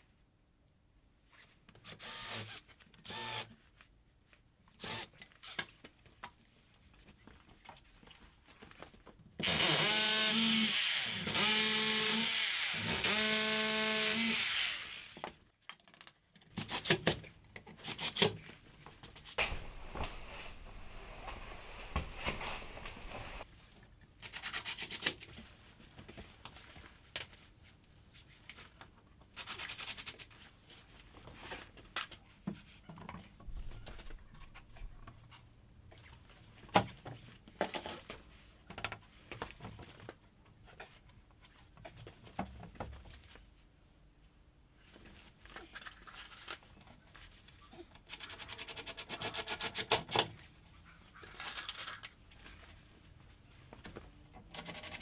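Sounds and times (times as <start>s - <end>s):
cordless drill running: 1.9s - 3.4s, 4.8s - 5.6s, 9.4s - 15.2s
wooden panels rubbing and knocking: 19.4s - 23.4s.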